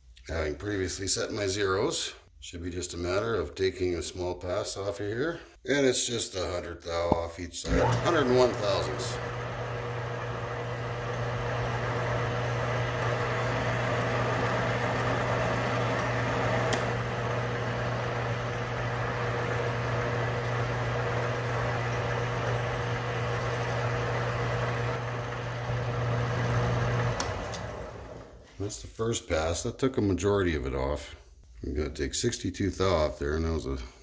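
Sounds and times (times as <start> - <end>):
lathe motor hum: 7.6 - 28.4.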